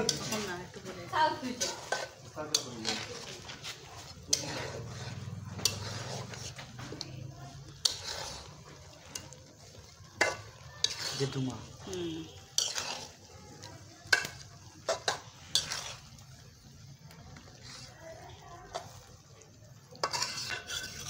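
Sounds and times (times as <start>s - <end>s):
curry cooking: 0.0s - 21.0s
spoon stirring curry: 0.0s - 21.0s
spoon knocking metal pan: 10.1s - 11.0s, 14.1s - 15.8s.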